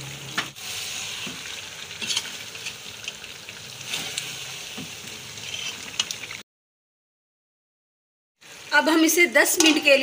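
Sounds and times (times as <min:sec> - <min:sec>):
vegetables sizzling in hot fat: 0:00.0 - 0:06.4, 0:08.4 - 0:10.0
spoon scraping a pot: 0:02.0 - 0:02.8, 0:05.3 - 0:06.1.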